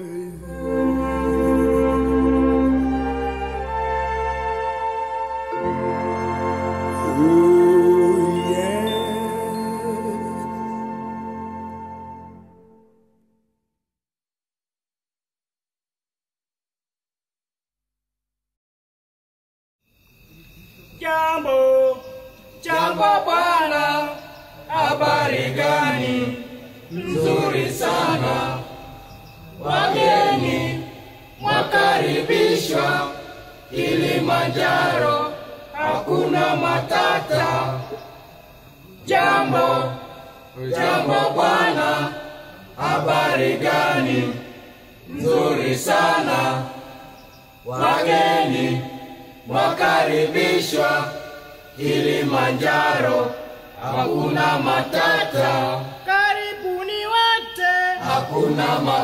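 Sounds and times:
group singing a chant: 0.0 - 3.8, 7.0 - 10.7, 21.1 - 59.0.

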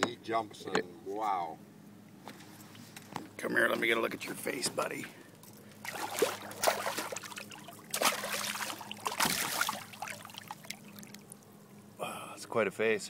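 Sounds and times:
fish splashing in water: 5.5 - 11.9.

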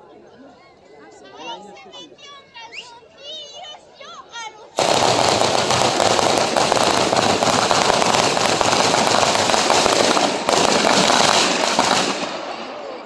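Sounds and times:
firecrackers banging: 4.8 - 13.0.

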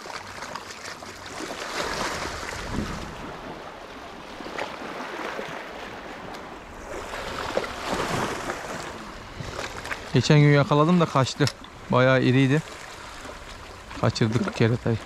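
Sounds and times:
sea waves splashing on shore: 0.0 - 15.0.

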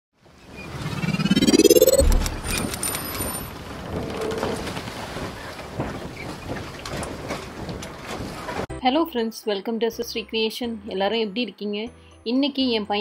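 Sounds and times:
rising whoosh: 0.7 - 3.0
low boom: 1.1 - 2.8.

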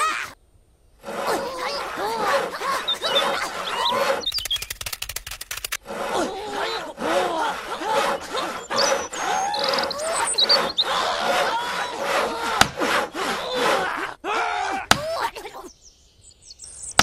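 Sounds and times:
hand saw cutting wood: 1.0 - 4.5, 5.8 - 14.0.

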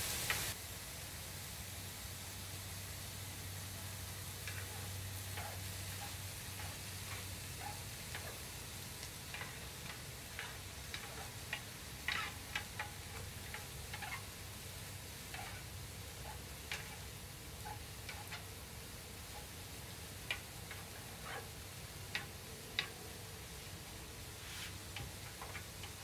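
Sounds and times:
food sizzling on a griddle: 0.0 - 26.0
tongs clicking against pan: 4.4 - 23.7, 24.7 - 26.0.

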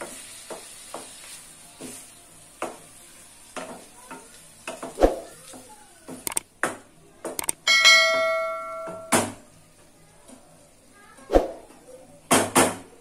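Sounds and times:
mouse click: 6.2 - 6.5, 7.4 - 7.6
bell chime: 7.7 - 9.1.

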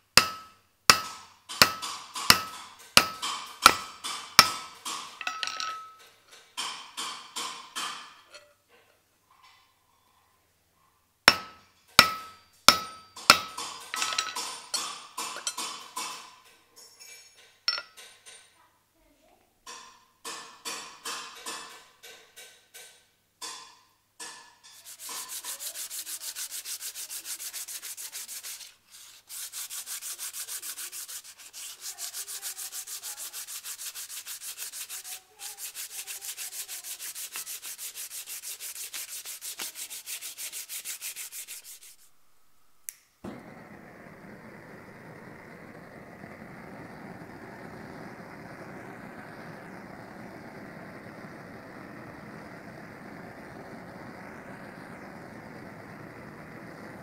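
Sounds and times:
hammer blows on metal: 0.2 - 6.0, 11.3 - 14.5
sandpaper rubbing wood: 24.8 - 42.3.

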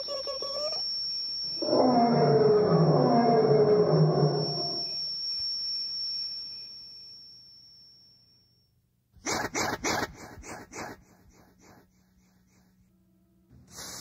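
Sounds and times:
horror roar: 1.6 - 4.9.

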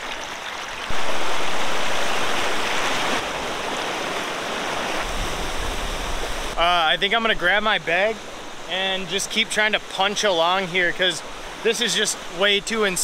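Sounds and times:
river rapids rushing: 0.9 - 7.1.

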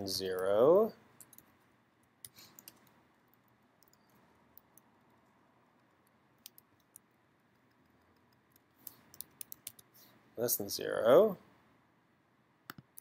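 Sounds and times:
computer keyboard keystrokes: 7.6 - 9.9.

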